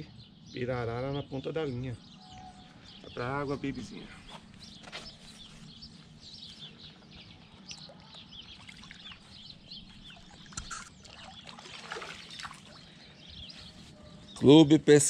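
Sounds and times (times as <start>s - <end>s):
birds chirping: 0.0s - 15.0s
water splashing and trickling: 7.7s - 13.3s.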